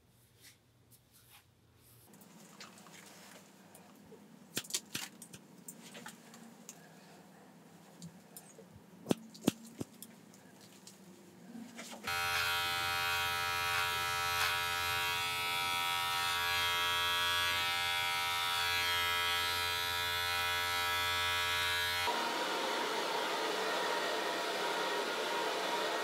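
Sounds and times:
electric hair clippers buzzing: 12.1s - 26.0s.

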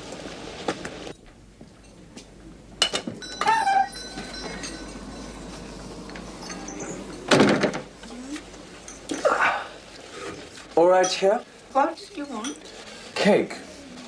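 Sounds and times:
small shop bell ringing: 3.2s - 7.3s
door creaking: 3.3s - 9.3s
loud thud: 7.3s - 7.9s.

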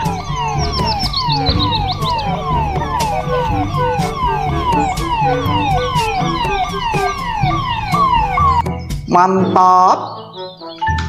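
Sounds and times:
toy police siren: 0.0s - 8.7s.

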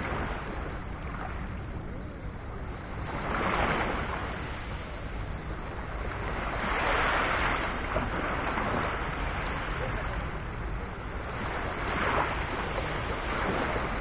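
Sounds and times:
small waves breaking on shore: 0.0s - 14.0s.

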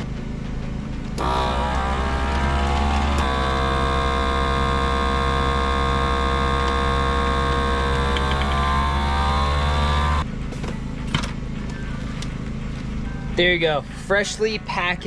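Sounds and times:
vacuum sealer pump motor running: 1.2s - 10.2s.

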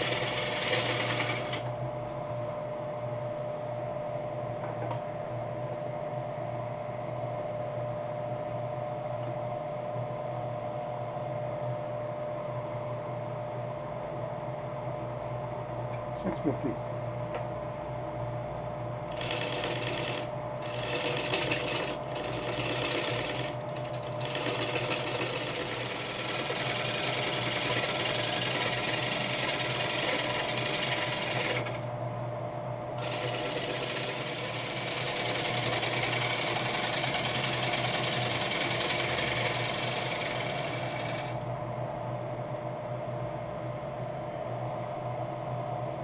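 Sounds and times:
lathe motor hum: 0.0s - 2.1s, 19.0s - 32.0s, 33.0s - 41.5s.

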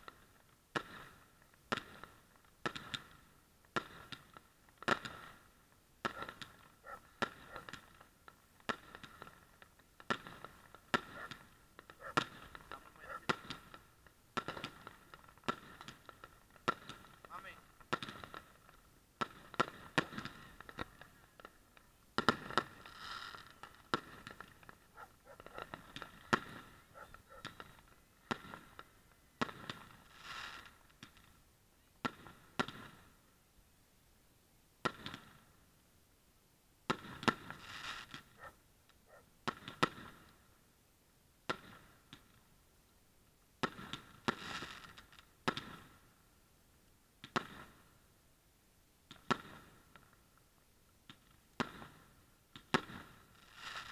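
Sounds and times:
fireworks bangs: 0.0s - 31.4s, 32.0s - 33.2s, 34.8s - 35.5s, 36.9s - 38.6s, 39.4s - 40.4s, 43.6s - 46.1s, 47.2s - 47.9s, 49.1s - 50.2s, 51.1s - 53.9s
fireworks rapid pops: 0.0s - 31.4s, 32.0s - 33.2s, 34.8s - 35.6s, 36.8s - 40.5s, 41.4s - 42.5s, 43.6s - 46.2s, 47.2s - 48.0s, 49.0s - 53.9s.

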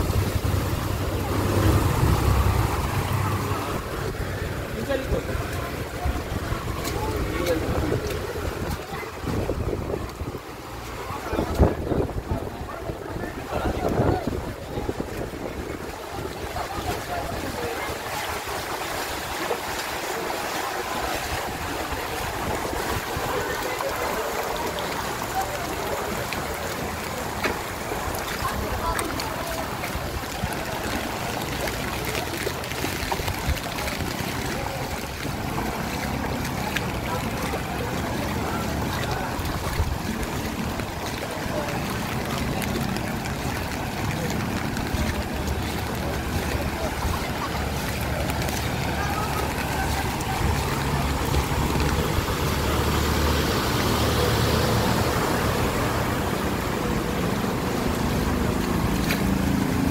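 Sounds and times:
vehicle engine humming: 0.0s - 8.6s
rain and floodwater washing: 0.0s - 59.9s
wind noise: 6.0s - 10.6s, 11.3s - 16.6s.

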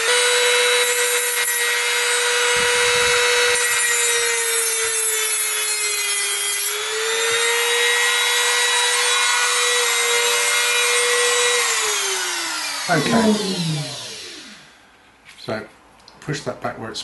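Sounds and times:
rotary tool grinding metal: 0.0s - 7.6s.

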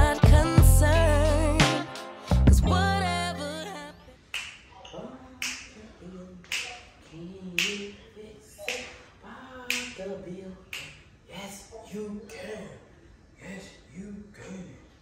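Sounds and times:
finger snaps: 4.3s - 5.7s, 6.4s - 6.9s, 7.6s - 7.9s, 8.6s - 9.1s, 9.7s - 10.0s, 10.7s - 11.0s.

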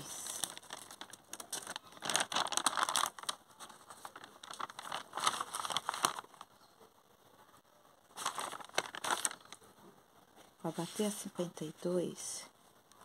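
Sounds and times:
paper rustling and crinkling: 0.0s - 6.5s, 8.1s - 9.6s.

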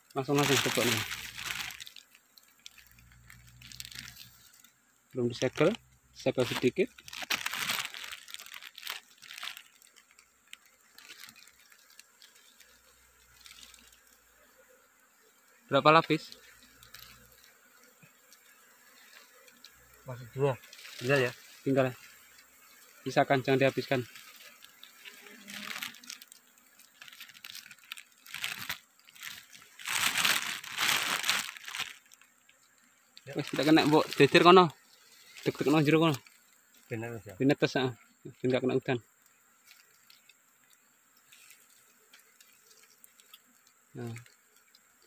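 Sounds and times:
plastic bag crinkling: 0.1s - 14.1s, 16.2s - 17.5s, 20.6s - 21.8s, 23.8s - 32.3s, 33.3s - 34.6s, 39.6s - 41.8s.

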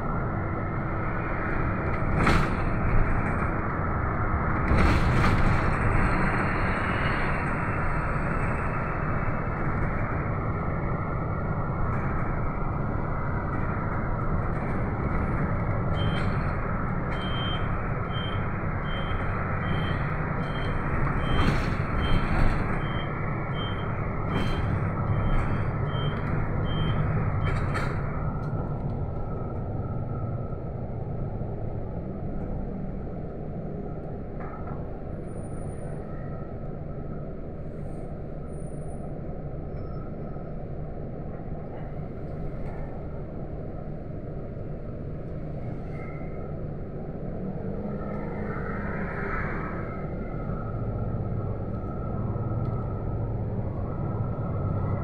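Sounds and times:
bus engine and road noise: 0.0s - 55.0s.

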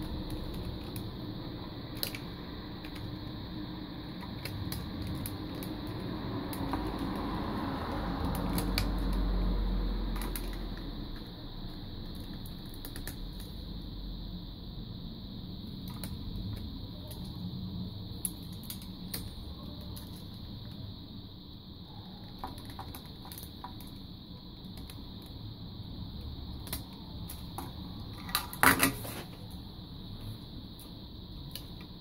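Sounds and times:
plastic parts clicking and rattling: 1.9s - 3.2s, 10.1s - 11.3s, 26.6s - 29.4s
plastic parts clattering: 27.3s - 29.4s.

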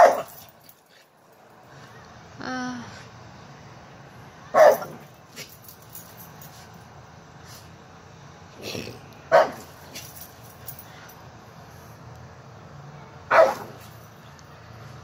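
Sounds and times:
small dog barking: 0.0s - 0.4s, 4.5s - 5.1s, 9.3s - 9.7s, 13.3s - 13.9s.

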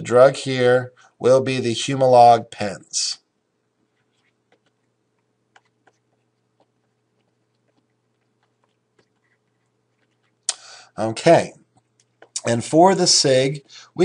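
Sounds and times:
steady low hum: 0.0s - 14.0s
stylus tapping on tablet screen: 4.0s - 10.4s.

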